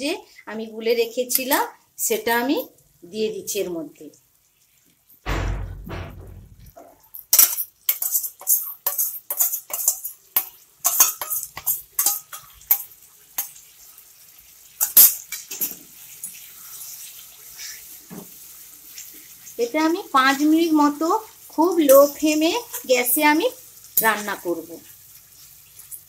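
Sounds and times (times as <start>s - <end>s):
loud knock: 5.3s - 6.8s
metal spatula scraping a pan: 5.8s - 13.6s, 14.8s - 17.8s.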